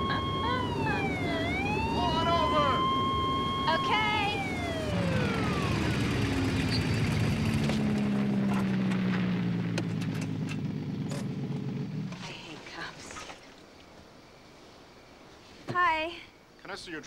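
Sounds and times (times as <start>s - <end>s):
engine idling: 0.0s - 8.8s
siren winding down: 0.0s - 9.4s.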